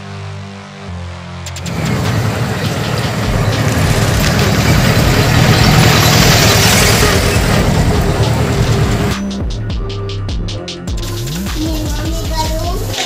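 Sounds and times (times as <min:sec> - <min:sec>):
vehicle engine running: 0:01.3 - 0:09.6.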